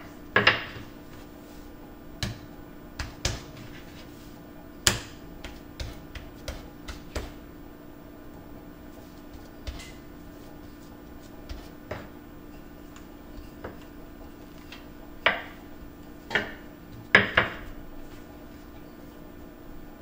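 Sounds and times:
rolling pin knocking on cutting board: 4.8 - 7.4.

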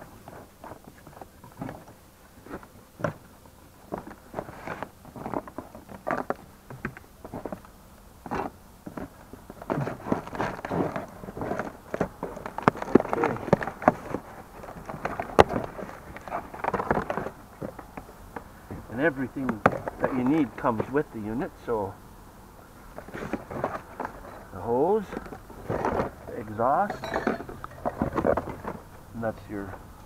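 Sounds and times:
cardboard scraping and flexing: 3.9 - 6.4, 8.2 - 17.9, 22.9 - 26.9
plastic wrap crinkling: 9.7 - 17.8.

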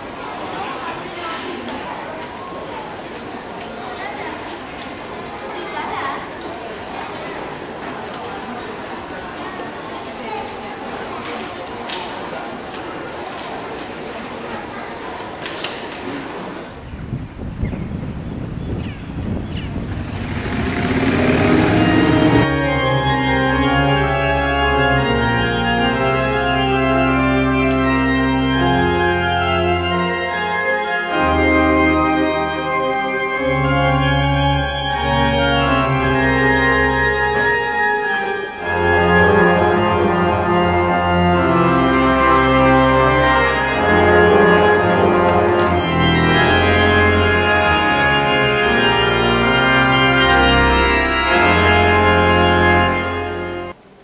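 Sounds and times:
pipe organ sustained chords: 19.8 - 53.8.

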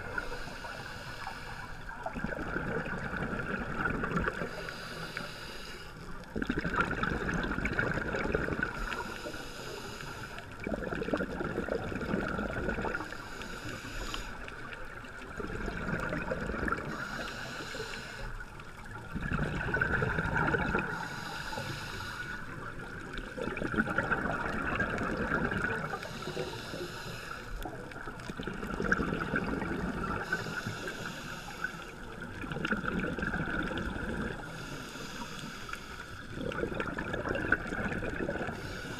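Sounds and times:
regulator inhale hiss: 0.0 - 2.1, 4.2 - 6.3, 8.6 - 10.7, 12.8 - 15.0, 16.7 - 18.8, 20.7 - 23.1, 25.0 - 28.4, 30.0 - 32.3, 34.3 - 36.4, 38.3 - 38.9
exhaust bubbles rushing: 19.1 - 20.8, 23.4 - 25.9, 36.4 - 38.5.

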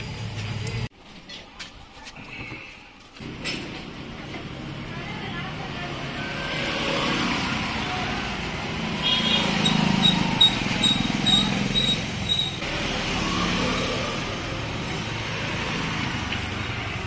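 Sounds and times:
street background noise: 0.0 - 17.0.

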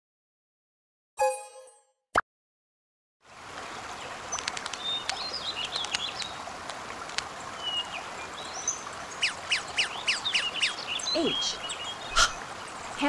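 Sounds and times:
stream rushing: 3.2 - 13.0
birds chirping: 3.9 - 6.5, 7.4 - 13.0
sharp clicks: 4.3 - 7.3.

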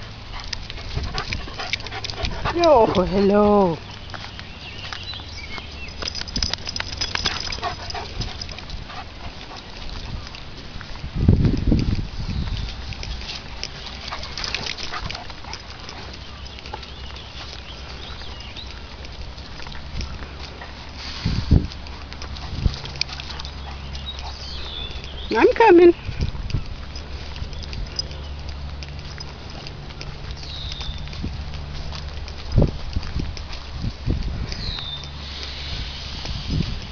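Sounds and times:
footsteps walking: 0.0 - 36.9
dog sniffing: 0.2 - 3.6, 6.6 - 9.8
bird chirps: 3.2 - 6.2, 23.2 - 26.2, 30.4 - 31.1, 34.6 - 36.1.

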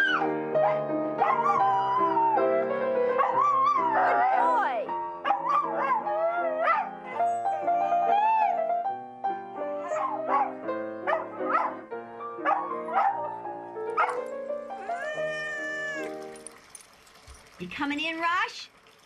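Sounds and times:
dog howling and yelping: 0.0 - 8.8, 9.7 - 11.8, 12.4 - 13.3, 14.8 - 16.2
piano chords: 0.0 - 16.7.

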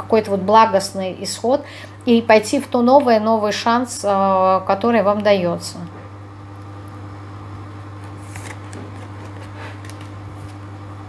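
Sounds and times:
cards shuffling: 8.0 - 10.7.

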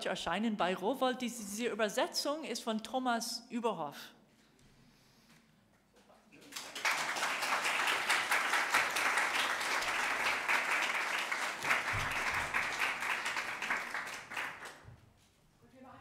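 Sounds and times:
audience applauding: 6.4 - 14.8.

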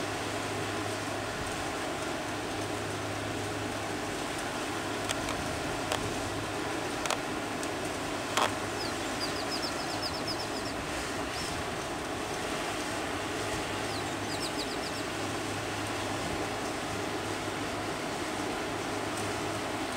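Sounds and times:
bird trilling: 8.4 - 10.8, 13.8 - 15.1.

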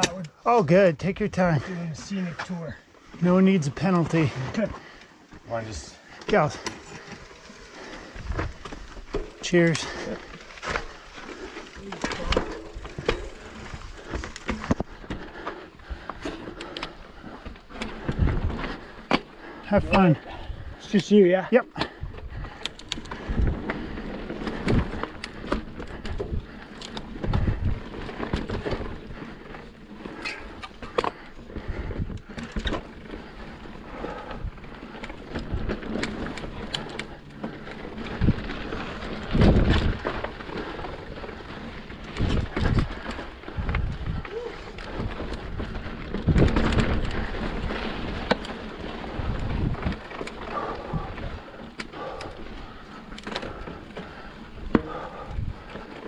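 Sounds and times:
bike clattering over rocks: 3.6 - 56.0.

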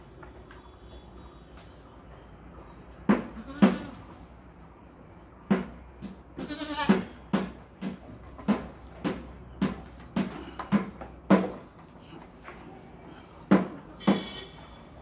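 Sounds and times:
goat bleating: 3.4 - 4.1, 6.4 - 7.2.

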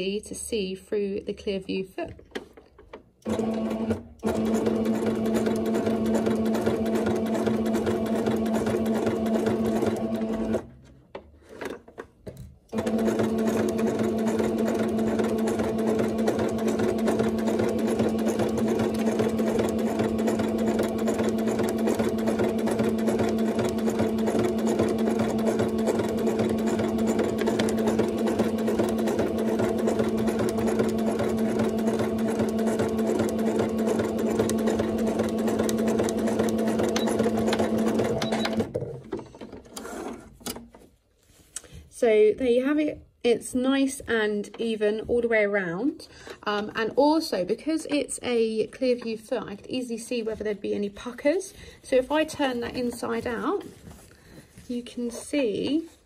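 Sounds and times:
sewing machine stitching: 2.4 - 10.9, 12.7 - 40.8.

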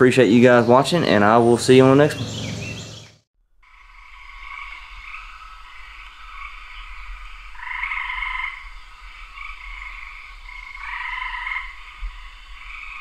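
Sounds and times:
frogs calling: 0.6 - 13.0.

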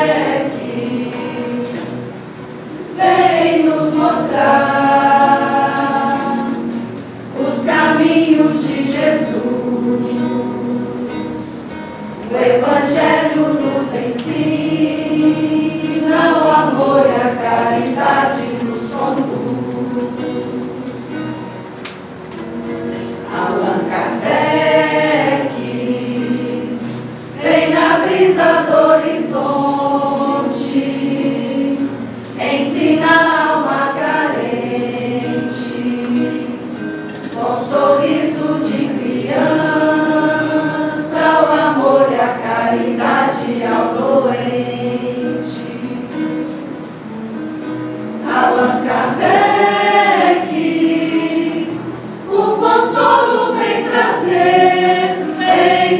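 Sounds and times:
keyboard accompaniment: 0.0 - 55.9
mixed choir singing slowly: 0.0 - 55.9.

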